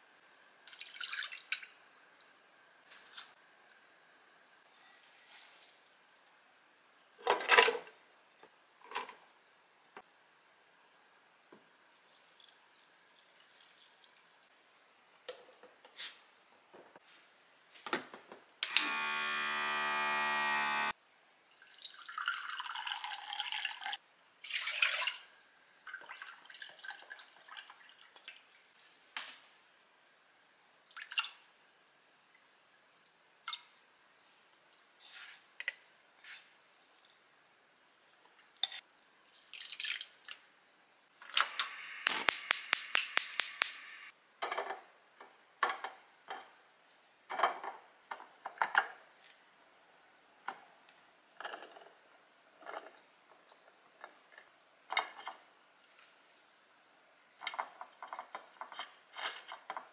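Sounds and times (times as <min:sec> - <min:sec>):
liquid pouring: 0:21.5 - 0:28.0.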